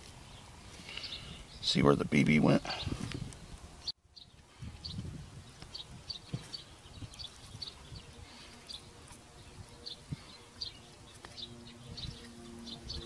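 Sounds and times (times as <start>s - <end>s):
bird chirping: 0.2s - 13.0s
low steady hum: 5.4s - 13.0s.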